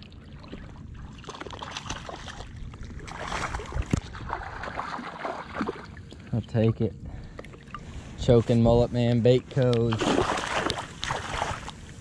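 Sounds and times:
water sloshing and splashing: 0:00.0 - 0:08.7, 0:09.3 - 0:12.0.

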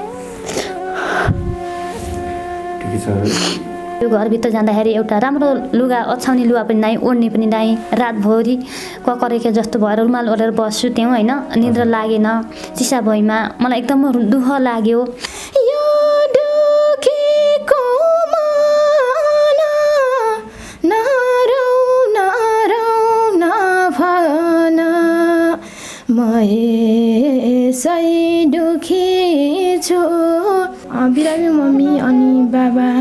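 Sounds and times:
woman singing solo: 0:26.2 - 0:33.0.

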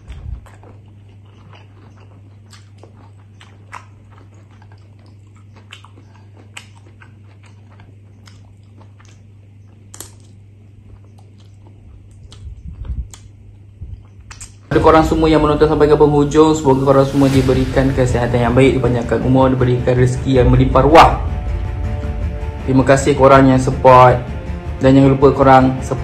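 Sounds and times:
man chewing food: 0:00.0 - 0:14.7
low hum: 0:10.7 - 0:26.0.

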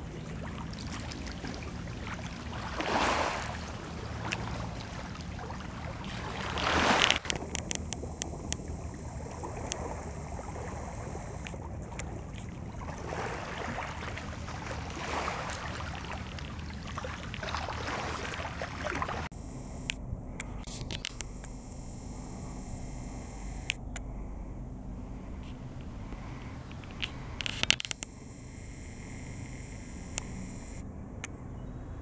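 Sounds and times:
lake water lapping: 0:00.0 - 0:30.8
low steady rumble: 0:00.0 - 0:32.0
handling clicks: 0:07.0 - 0:10.2, 0:19.7 - 0:24.1.

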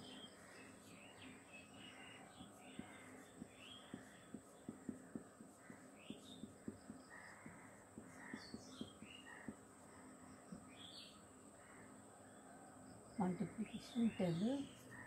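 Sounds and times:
faint bird calls: 0:00.0 - 0:15.0
marker knocking on whiteboard: 0:02.4 - 0:09.7.

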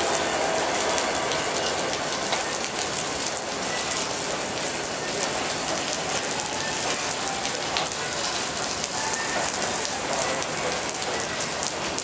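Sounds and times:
freight train rolling past: 0:00.0 - 0:12.0
heavy rain falling: 0:00.0 - 0:12.0.

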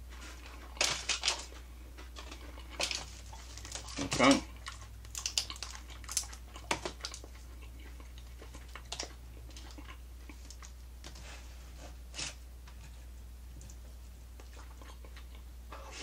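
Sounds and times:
steady low hum: 0:00.0 - 0:16.0
food being torn and chewed: 0:00.1 - 0:10.8, 0:14.4 - 0:15.5
sharp crackles and clicks: 0:05.0 - 0:07.2.

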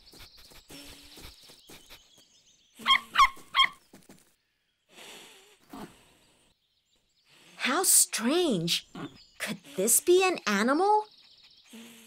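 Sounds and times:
cartoon animal squeaks: 0:02.8 - 0:03.8.

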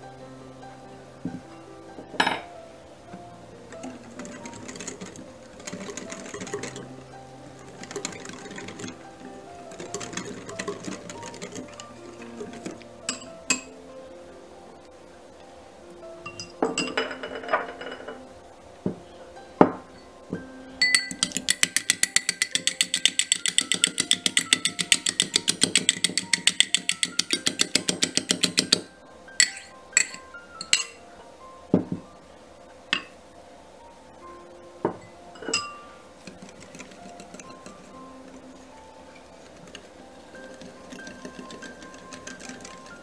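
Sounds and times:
background music: 0:00.0 - 0:43.0
glass clinks and knocks: 0:02.2 - 0:02.5, 0:16.3 - 0:18.2, 0:20.8 - 0:28.8, 0:29.4 - 0:31.0, 0:34.9 - 0:35.8
fork beating egg in glass bowl: 0:03.8 - 0:06.9, 0:07.6 - 0:13.7, 0:20.8 - 0:31.0, 0:35.5 - 0:38.1, 0:39.1 - 0:43.0.

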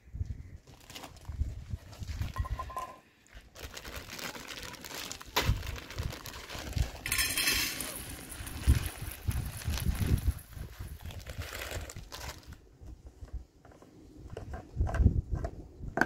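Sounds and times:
plastic packet crinkling: 0:00.7 - 0:02.6, 0:03.4 - 0:12.6.

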